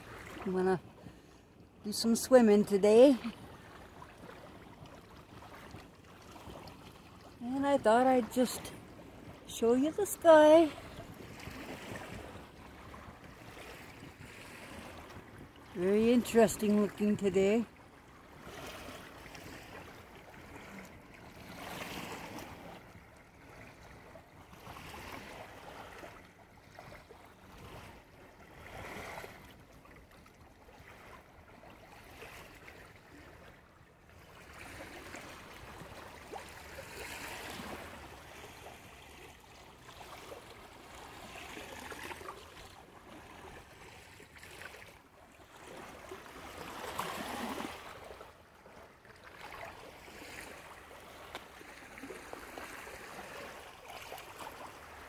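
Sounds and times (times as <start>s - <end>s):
small waves lapping on shore: 0.0s - 55.0s.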